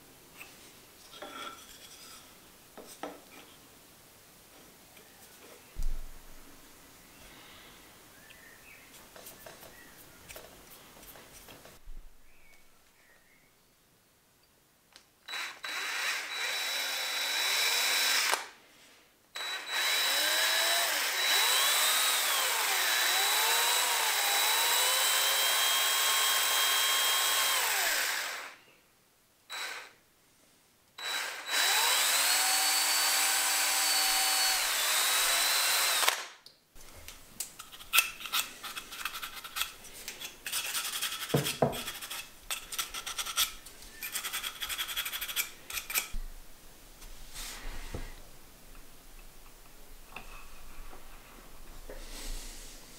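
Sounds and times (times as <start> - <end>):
cordless drill drilling into wood: 15.3 - 18.6, 19.4 - 28.6, 29.5 - 30.0, 31.0 - 36.3
scratching and rubbing: 37.6 - 46.0.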